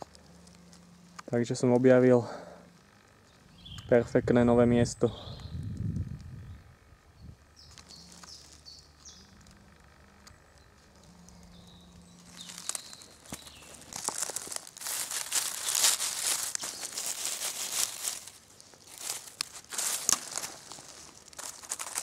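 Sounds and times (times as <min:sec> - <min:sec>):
rustling of dry leaves: 0:00.0 - 0:03.8, 0:04.5 - 0:22.0
faint birdsong chirps: 0:00.0 - 0:22.0
cloth bag rustling: 0:12.2 - 0:22.0.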